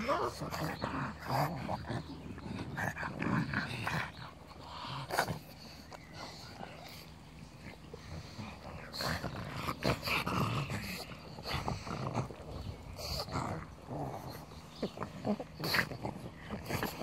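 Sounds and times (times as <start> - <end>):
dogs growling: 0.0 - 17.0.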